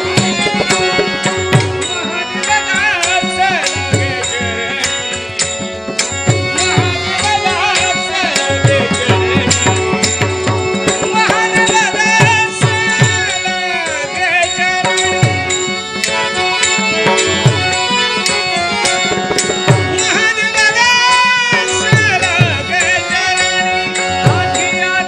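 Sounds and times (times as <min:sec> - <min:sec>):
ornamented melody line: 0:00.0 - 0:25.0
hand drum strokes: 0:17.0 - 0:20.2.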